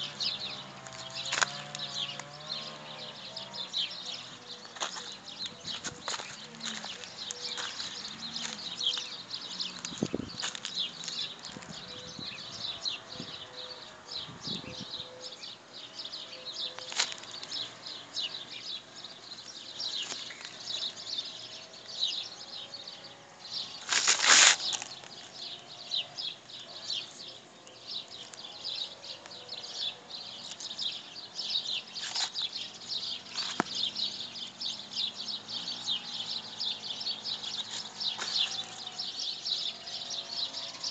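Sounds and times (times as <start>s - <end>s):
small birds chirping: 0.0s - 40.9s
loud rustle: 23.8s - 25.1s.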